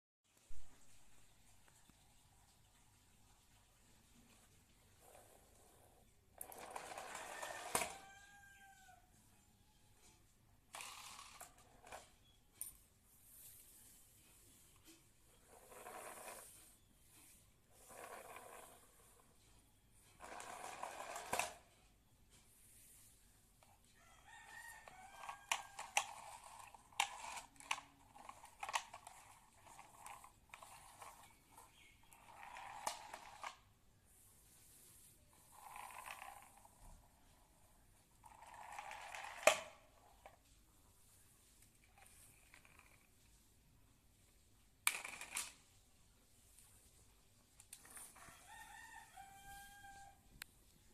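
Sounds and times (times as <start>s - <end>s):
plastic carts rolling on tile: 2.5s - 9.0s, 10.0s - 12.3s, 13.8s - 33.8s, 34.9s - 40.6s, 41.5s - 43.4s, 44.2s - 45.8s, 47.4s - 50.2s
plastic toys clicking on tile: 6.4s - 8.2s, 10.7s - 12.8s, 20.1s - 21.8s, 24.4s - 33.7s, 35.4s - 37.0s, 38.2s - 40.4s, 44.8s - 45.8s
rooster crowing faintly: 6.5s - 10.3s, 23.6s - 26.7s, 47.8s - 50.4s.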